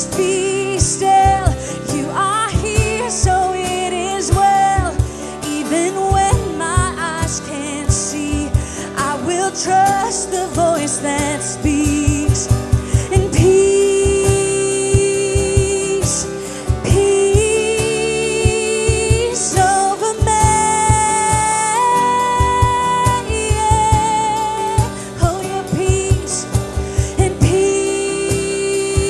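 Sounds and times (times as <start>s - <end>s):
worship band playing: 0.0s - 29.0s
steady drum beat: 6.1s - 9.1s, 11.6s - 29.0s.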